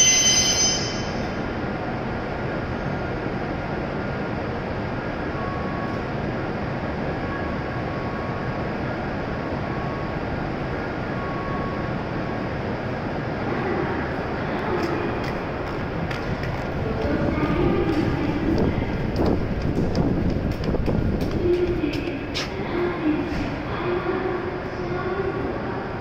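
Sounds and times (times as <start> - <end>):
train equipment rushing hum: 0.0 - 26.0.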